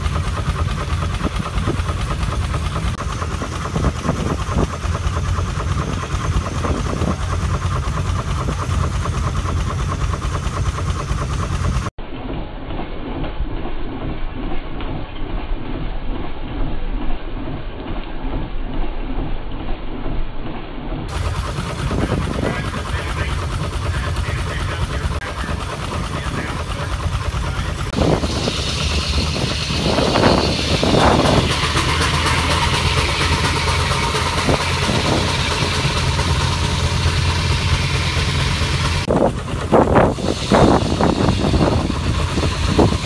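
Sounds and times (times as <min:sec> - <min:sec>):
steam engine mechanical drone: 0:00.0 - 0:43.0
steam hiss: 0:21.1 - 0:43.0.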